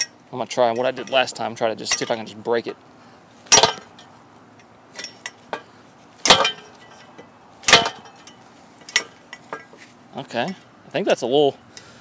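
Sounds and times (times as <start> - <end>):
bike lock clanking on frame: 3.5 - 4.1, 5.0 - 9.8.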